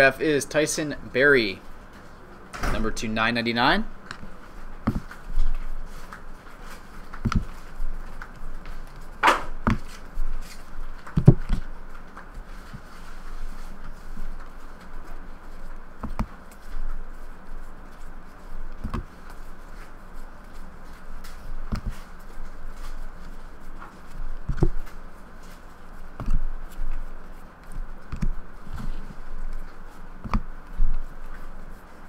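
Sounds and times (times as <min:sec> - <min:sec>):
faint steady hum: 0:00.0 - 0:32.0.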